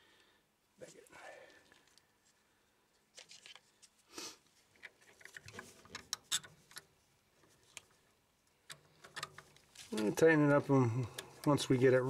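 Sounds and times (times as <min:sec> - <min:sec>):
small metallic clicks and scrapes: 0:04.7 - 0:12.0.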